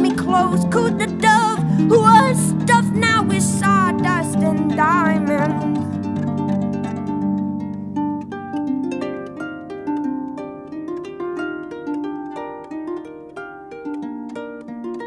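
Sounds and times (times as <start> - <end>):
harp plucked notes: 0.0 - 15.0.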